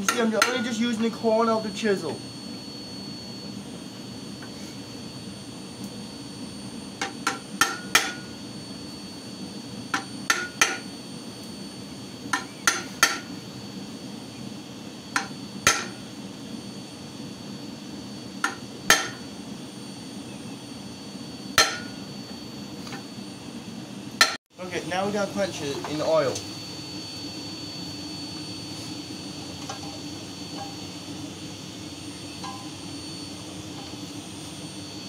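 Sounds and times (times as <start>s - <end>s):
sharp metallic ringing blows: 21.6s - 22.1s, 32.2s - 33.8s.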